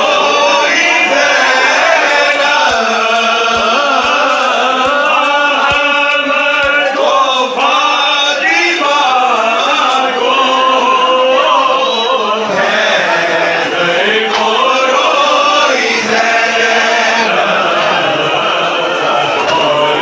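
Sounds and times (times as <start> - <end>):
crowd of men chanting: 0.0 - 20.0.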